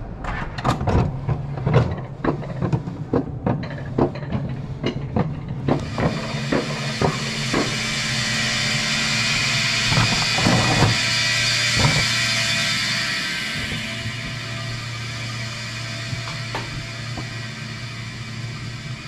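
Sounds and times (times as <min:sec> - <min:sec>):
sled rushing along rails: 0:00.0 - 0:19.0
ratcheting clicks of coaster lift: 0:00.2 - 0:12.8.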